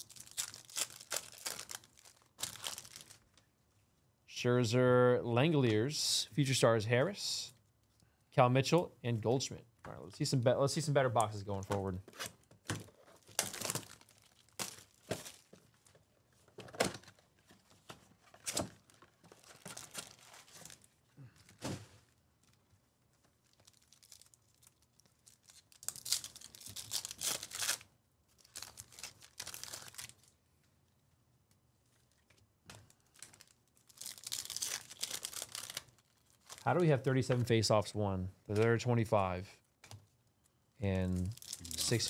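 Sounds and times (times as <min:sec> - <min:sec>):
foil wrappers tearing: 0:00.0 - 0:03.2, 0:13.2 - 0:15.5, 0:23.5 - 0:30.2, 0:33.1 - 0:36.7, 0:41.2 - 0:42.0.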